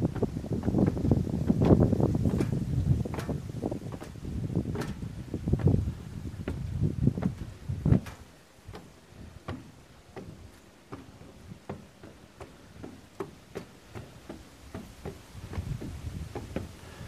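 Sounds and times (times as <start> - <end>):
footsteps climbing stairs: 0.0 - 17.0.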